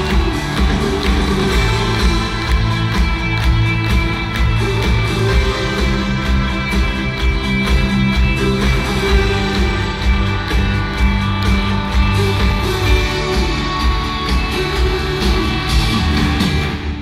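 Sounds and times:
pop-rock band playing: 0.0 - 17.0.

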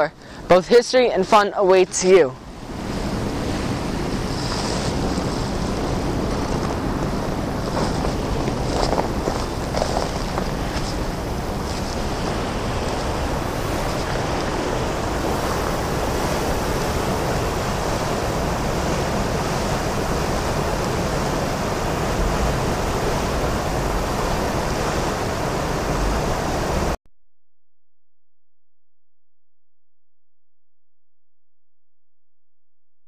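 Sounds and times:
water rushing in gorge: 2.1 - 27.0
wind on microphone: 2.4 - 27.0.

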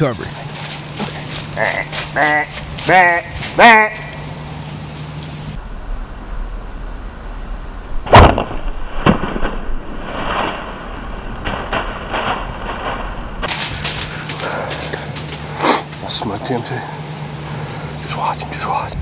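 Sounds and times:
rustling in dry leaves: 0.0 - 5.6, 9.0 - 18.0
sharp cracks: 8.0 - 16.1.

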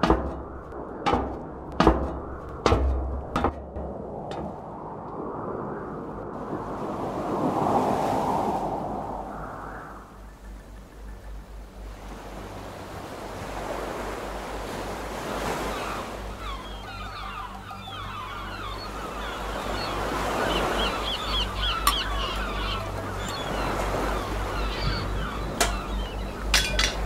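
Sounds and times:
surf washing on shore: 0.0 - 10.3, 11.6 - 27.0
birds chirping: 9.3 - 27.0.

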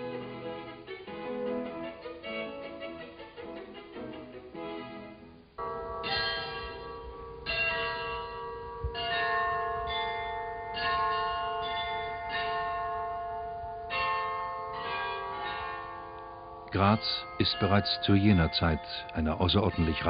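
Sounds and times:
church bells ringing: 5.6 - 20.0.

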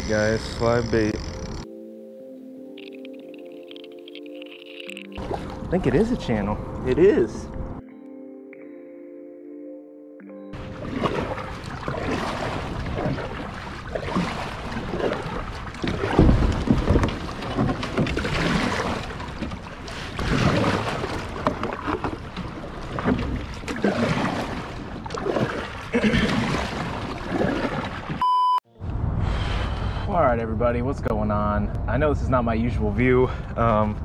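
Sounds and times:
paddle splashing in water: 5.1 - 5.7, 10.6 - 28.2.

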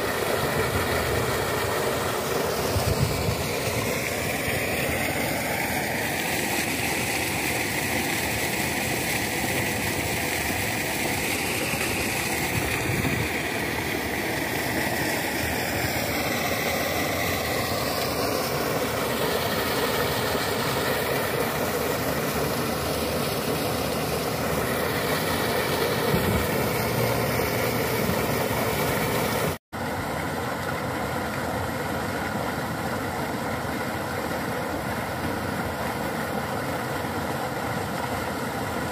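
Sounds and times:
slurry gushing from pipe: 0.0 - 29.6.

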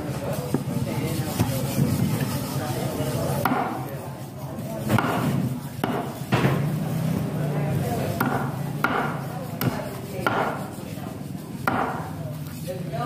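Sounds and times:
cleaver chopping on wooden block: 3.4 - 3.8, 4.8 - 6.6, 8.1 - 10.6, 11.6 - 12.1.

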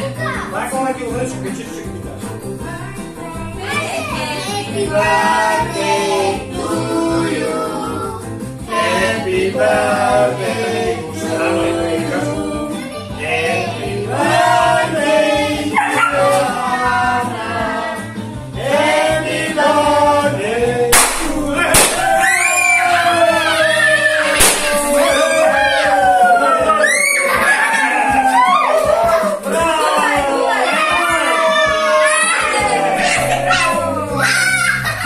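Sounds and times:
people singing with music: 0.0 - 35.0
confetti cannon pops: 20.9 - 22.6, 24.4 - 25.1.

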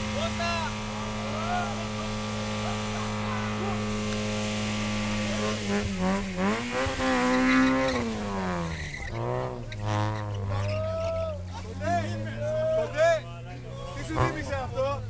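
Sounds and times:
car engine revving hard: 0.0 - 10.8, 14.0 - 15.0.

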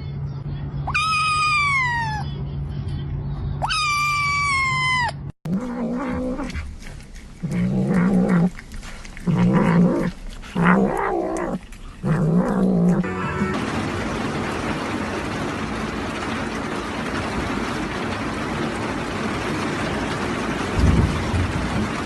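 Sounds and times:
kitten meowing: 0.8 - 2.2, 3.6 - 6.6
cat growling yowls: 0.9 - 2.2, 3.6 - 6.6, 7.4 - 8.6, 9.2 - 13.5.

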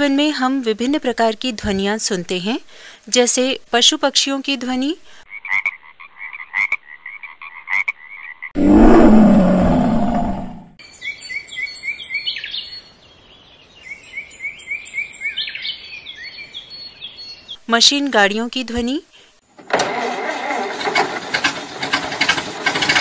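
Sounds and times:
loud low rough animal call: 8.6 - 10.8
birdsong of quick chirps: 10.8 - 17.6.

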